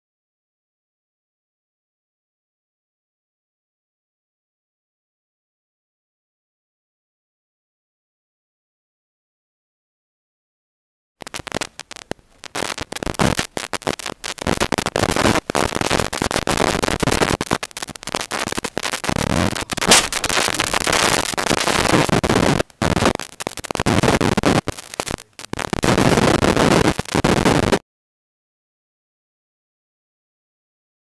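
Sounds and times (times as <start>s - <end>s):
crackling driving noise: 11.2s - 27.8s
sharp crack: 11.2s - 27.8s.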